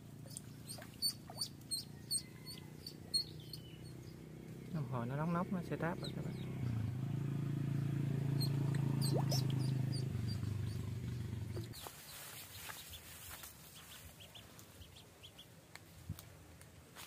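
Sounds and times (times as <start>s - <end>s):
low steady hum: 0.0s - 11.8s
duckling peeping: 0.3s - 4.0s, 8.4s - 13.1s, 13.7s - 15.5s.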